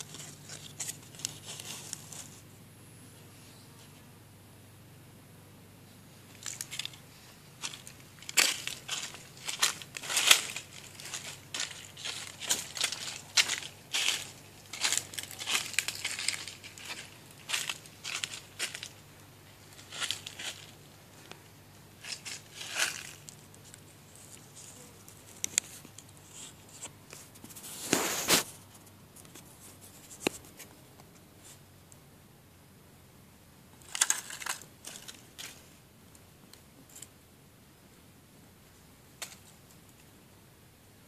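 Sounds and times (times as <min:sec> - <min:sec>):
dry leaves rustling: 0:00.0 - 0:02.5, 0:06.2 - 0:30.1, 0:33.8 - 0:35.7.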